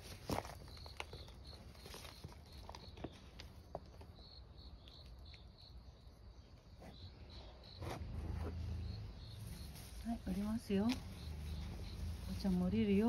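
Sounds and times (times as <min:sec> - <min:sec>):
faint ticks and scuffs: 0:00.0 - 0:05.6, 0:06.5 - 0:13.0
insect chirping in high pulses: 0:08.5 - 0:13.0.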